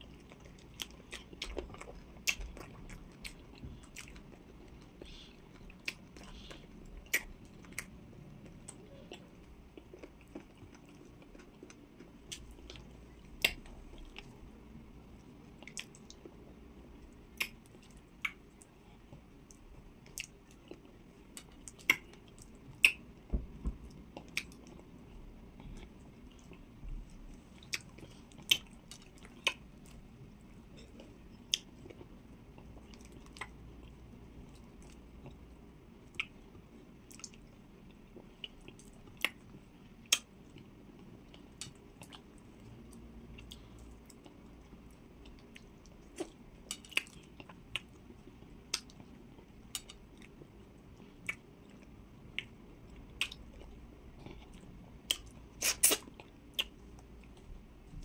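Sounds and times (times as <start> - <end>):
close chewing: 0.0 - 14.4
wet mouth smacks: 55.1 - 56.0.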